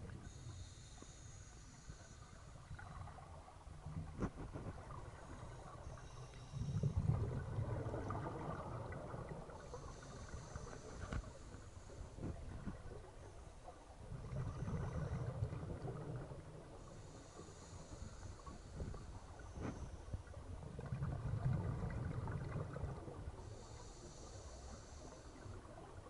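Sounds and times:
regulator inhalation hiss: 0:00.2 - 0:02.6, 0:16.8 - 0:19.9, 0:23.4 - 0:25.6
underwater exhaled air bubbling: 0:01.7 - 0:26.0.

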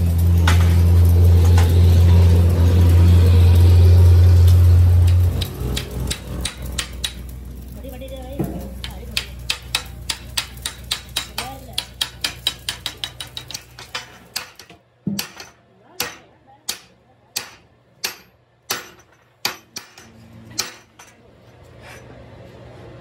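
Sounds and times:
hammer striking steel: 0:04.5 - 0:07.4, 0:08.4 - 0:21.3.

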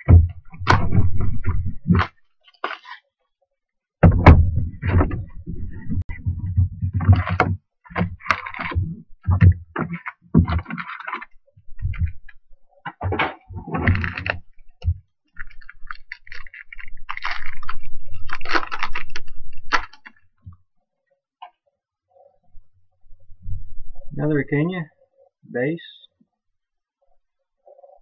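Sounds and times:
foil pack tearing open: 0:13.9 - 0:14.4, 0:15.4 - 0:20.2
foil wrappers crinkling: 0:15.4 - 0:20.2.

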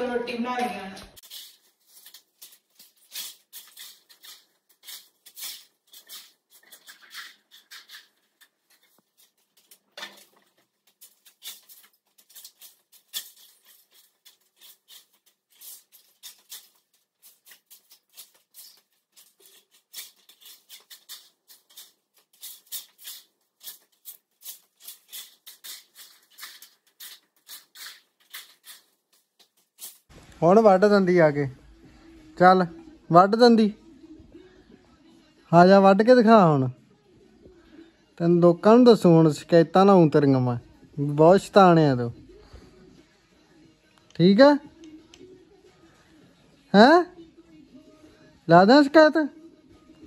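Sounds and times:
paper scraps crackling and rustling: 0:01.2 - 0:30.2.

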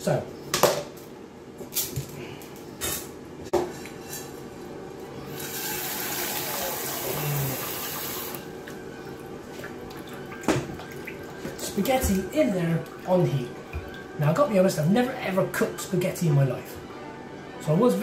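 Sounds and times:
kitchen tap running: 0:05.3 - 0:08.8.

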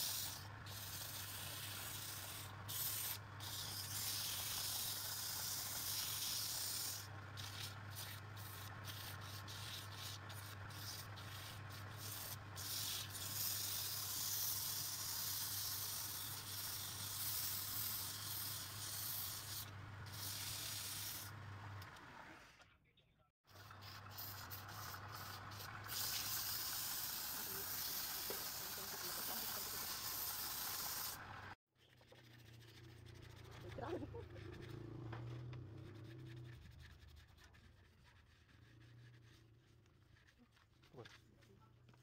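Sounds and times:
sandpaper hissing on spinning wood: 0:00.0 - 0:21.4, 0:23.5 - 0:31.5.

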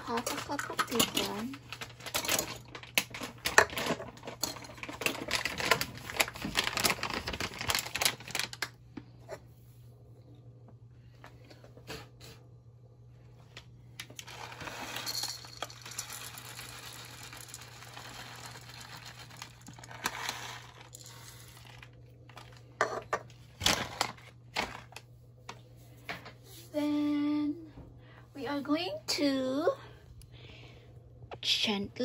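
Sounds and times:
plastic bag crinkling: 0:00.0 - 0:08.8, 0:14.2 - 0:22.8
nuts rattling into plastic cup: 0:00.1 - 0:08.6, 0:14.2 - 0:24.9.

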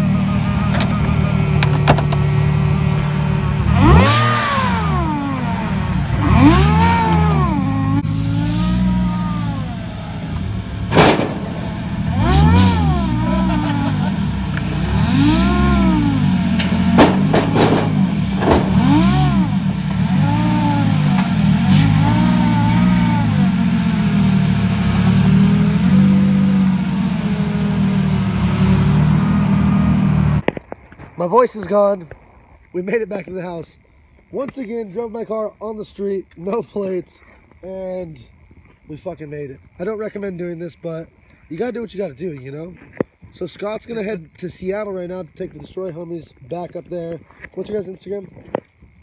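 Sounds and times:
car engines revving: 0:00.0 - 0:30.5
steady engine drone: 0:00.0 - 0:30.5
sharp cracks: 0:10.3 - 0:22.3.

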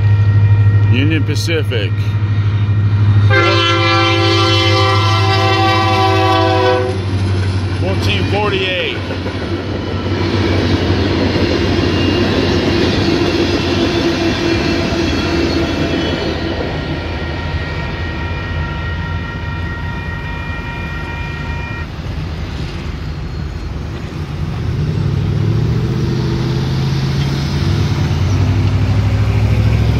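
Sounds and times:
cars driving across tracks: 0:00.0 - 0:29.9
freight train rumbling: 0:00.0 - 0:29.9
crossing bell ringing: 0:07.8 - 0:09.1.

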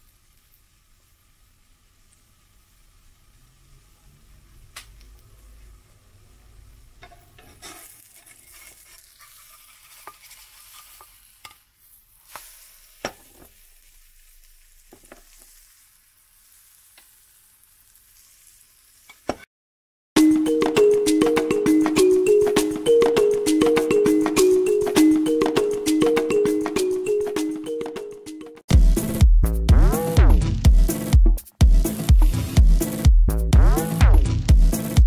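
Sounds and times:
pancake sizzling in a pan: 0:00.0 - 0:03.6, 0:07.3 - 0:19.5
spatula scraping a pan: 0:07.1 - 0:14.3.

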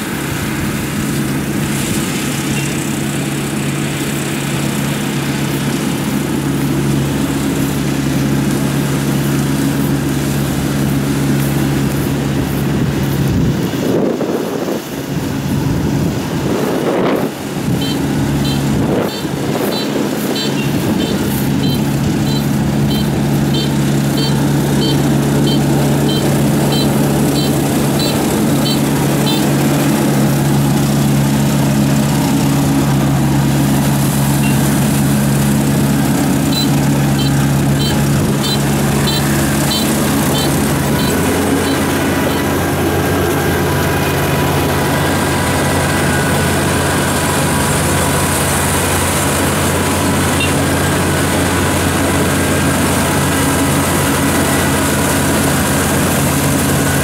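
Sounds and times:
combine harvester diesel engine: 0:00.0 - 0:57.0
high beeps: 0:17.8 - 0:29.5, 0:34.4 - 0:34.6, 0:36.5 - 0:42.5.

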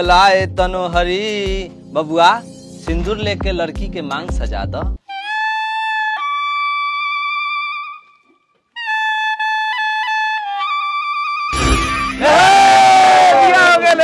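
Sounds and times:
reedy melodic instrument playing: 0:08.8 - 0:13.8.

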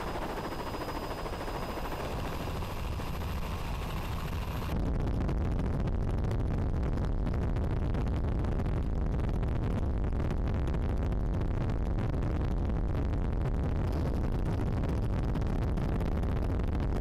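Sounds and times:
helicopter engine and rotor din: 0:00.0 - 0:04.8.

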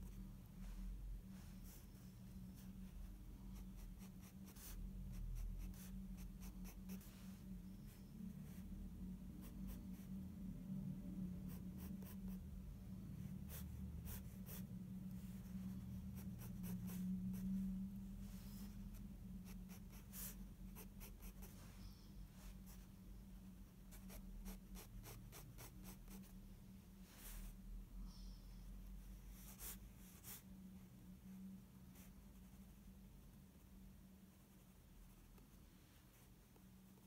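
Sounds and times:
low steady hum: 0:00.0 - 0:37.0
pencil scratching on paper: 0:03.6 - 0:07.2, 0:11.4 - 0:12.4, 0:13.2 - 0:17.5, 0:18.2 - 0:22.9, 0:23.9 - 0:26.3.

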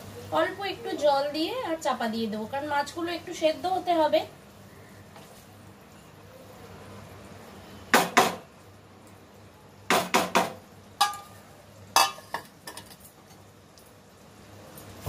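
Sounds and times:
metal kitchenware clanking on pan: 0:09.9 - 0:11.4, 0:12.0 - 0:13.0.

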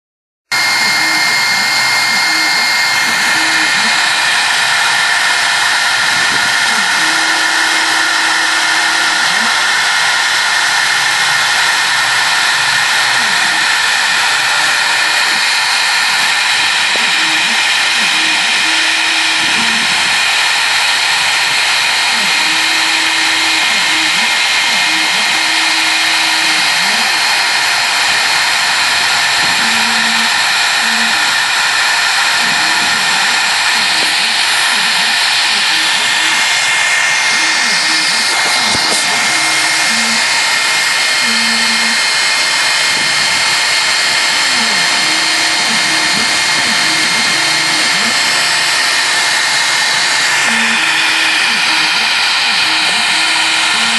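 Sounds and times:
router spindle high-pitched whine: 0:00.4 - 0:53.9
stepper motor notes: 0:00.5 - 0:53.9.

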